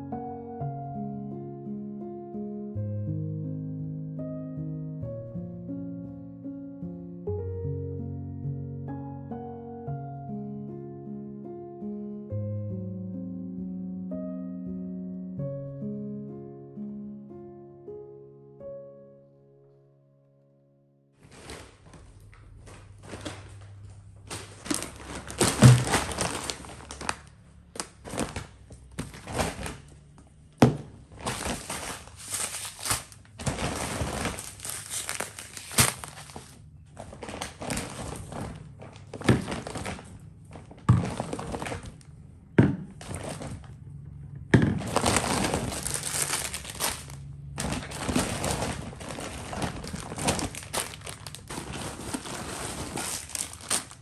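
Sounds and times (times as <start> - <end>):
plastic packaging crinkling: 21.2 - 42.2, 43.0 - 43.8, 44.6 - 54.0
items thunking on wooden counter: 30.6 - 31.0, 42.6 - 43.5, 44.4 - 45.0.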